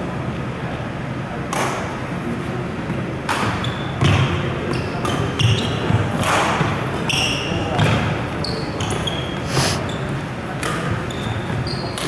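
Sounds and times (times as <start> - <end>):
shoes squeaking on floor: 8.4 - 10.2, 11.0 - 12.0.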